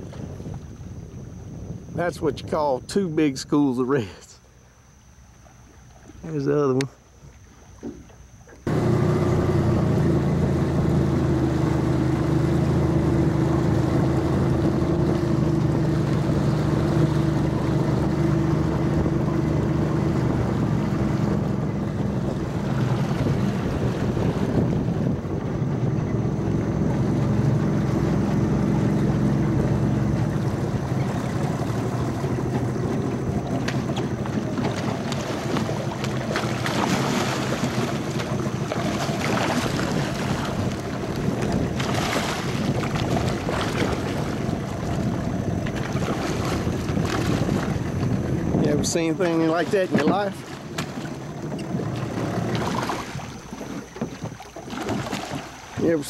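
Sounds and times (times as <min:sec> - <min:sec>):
wind noise on microphone: 0:00.0 - 0:03.6, 0:08.7 - 0:56.0
outboard motor running: 0:00.0 - 0:56.0
water rushing: 0:08.6 - 0:56.0.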